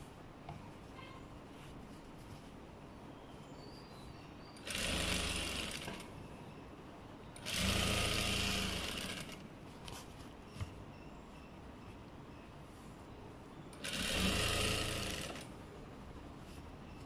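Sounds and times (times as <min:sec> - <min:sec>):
sewing machine stitching: 0:04.6 - 0:06.1, 0:07.4 - 0:09.4, 0:13.8 - 0:15.5.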